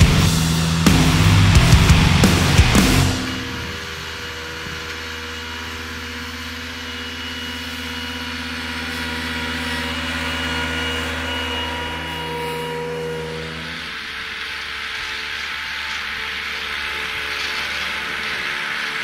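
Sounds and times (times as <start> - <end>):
tractor engine running under load: 0.0 - 12.4.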